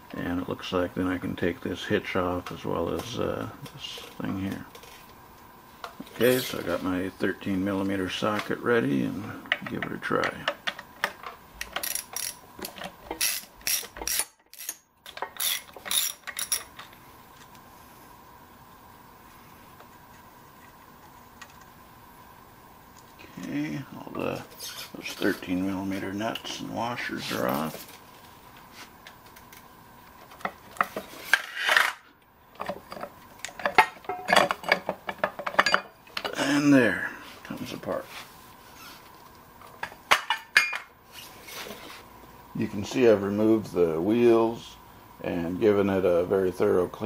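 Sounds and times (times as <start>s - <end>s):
steel parts clinking: 11.6s - 16.9s
ratchet wrench clicking: 13.2s - 14.8s, 15.4s - 16.7s.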